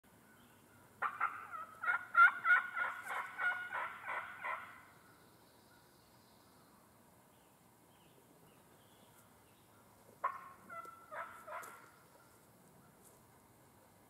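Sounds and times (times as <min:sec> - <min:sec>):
turkey calling: 0:00.2 - 0:05.1, 0:09.6 - 0:13.0.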